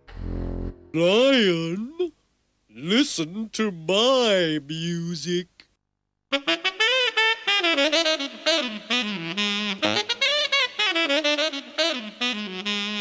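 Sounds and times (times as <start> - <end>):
saxophone melody: 6.3 - 13.0.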